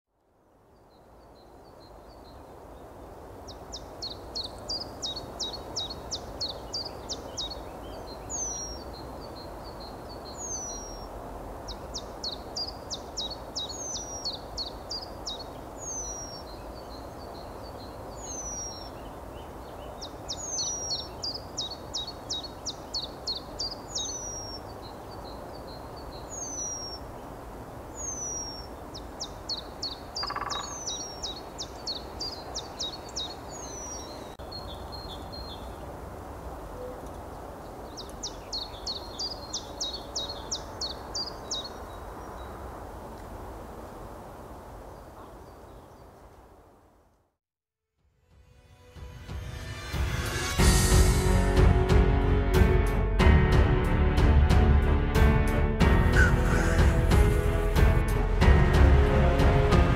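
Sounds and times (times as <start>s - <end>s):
songbirds trilling and whistling: 3.5s - 27.3s, 27.9s - 35.8s, 36.8s - 42.6s, 56.0s - 57.1s.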